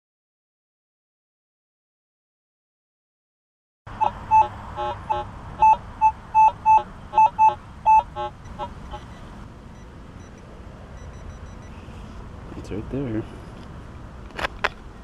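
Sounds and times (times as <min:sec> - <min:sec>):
metal detector beeps: 0:04.0 - 0:09.2, 0:11.0 - 0:11.7.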